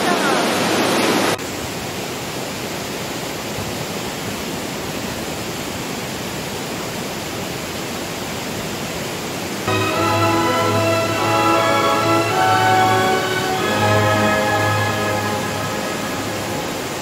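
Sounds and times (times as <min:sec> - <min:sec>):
stream rushing over rocks: 0:00.0 - 0:17.0.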